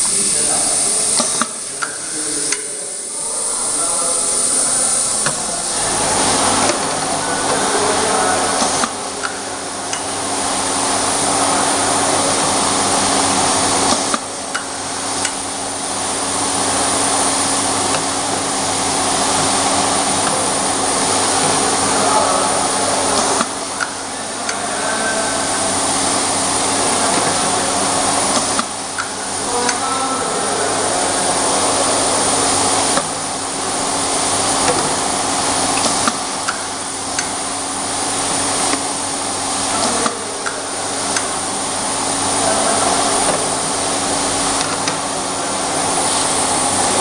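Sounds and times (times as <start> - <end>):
labeling machine whirring: 0.0 - 47.0
sharp clicks and knocks: 35.7 - 37.4.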